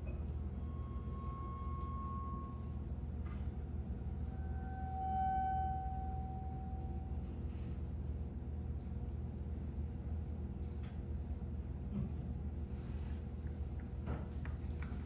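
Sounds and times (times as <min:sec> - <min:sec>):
high pure tone: 0:00.0 - 0:07.8
lower held tone: 0:00.0 - 0:08.9
steady low hum: 0:00.0 - 0:15.0.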